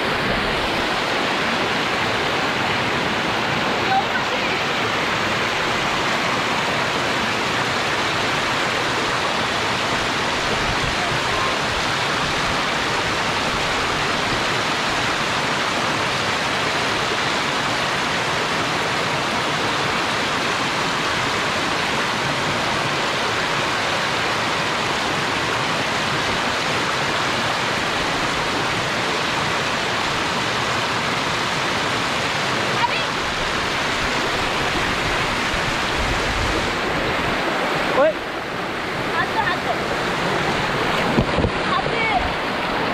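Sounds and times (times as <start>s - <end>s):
stream water rushing over rocks: 0.0s - 42.9s.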